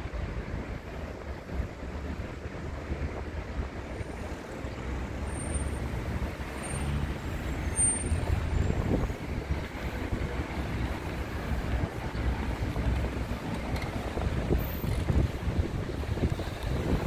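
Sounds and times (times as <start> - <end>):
road traffic rumble: 0.0 - 17.0
wind buffeting microphone: 8.1 - 17.0.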